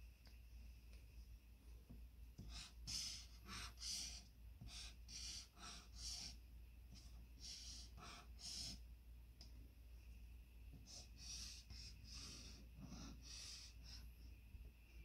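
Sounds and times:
highlighter strokes on paper: 2.4 - 8.8, 10.7 - 14.4.

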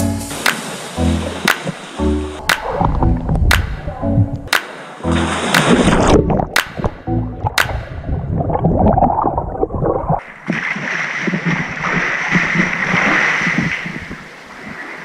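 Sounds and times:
water splashing in a pool: 0.3 - 15.0
underwater rumble and gurgle: 2.3 - 4.5, 5.4 - 14.8.

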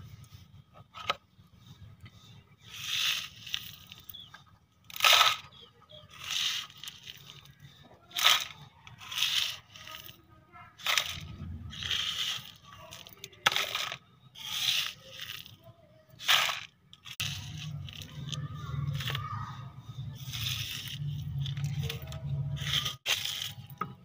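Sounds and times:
toy shovel scraping gravel: 2.5 - 23.8
gravel rattling into plastic trolley: 6.1 - 10.2, 10.8 - 15.6, 16.2 - 19.2, 20.2 - 23.8.

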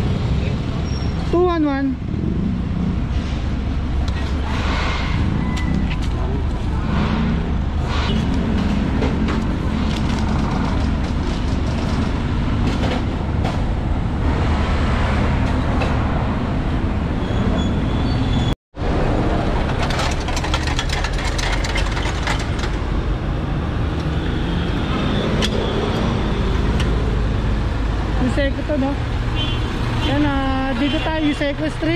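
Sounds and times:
city traffic drone: 0.0 - 31.9
rapid sharp clicks and rattles: 19.6 - 22.9.

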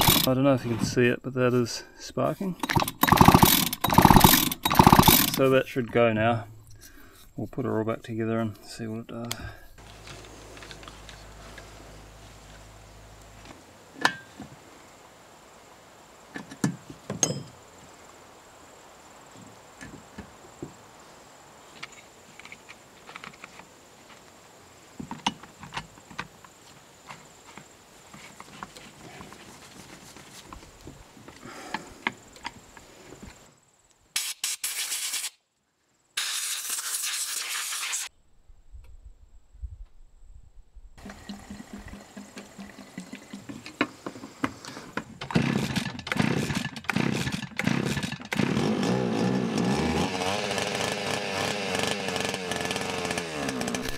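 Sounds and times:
chainsaw parts knocking and clicking: 0.0 - 0.3, 2.6 - 5.5, 41.3 - 48.5, 51.8 - 53.9
bursts of hiss: 34.1 - 35.4, 36.2 - 38.1
liquid being poured: 41.0 - 43.6.

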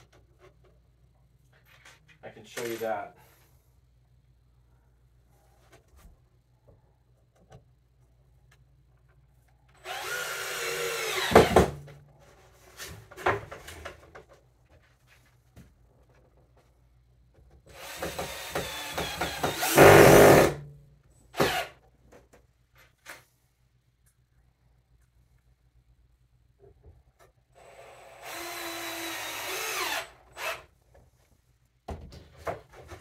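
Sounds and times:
cordless drill driving screws: 9.8 - 11.5, 17.7 - 20.5, 21.4 - 21.7, 27.6 - 30.7.

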